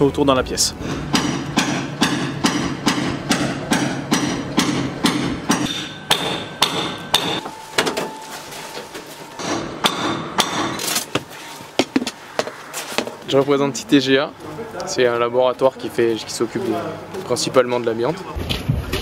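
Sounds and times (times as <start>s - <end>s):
hammer blows: 0.8s - 13.3s.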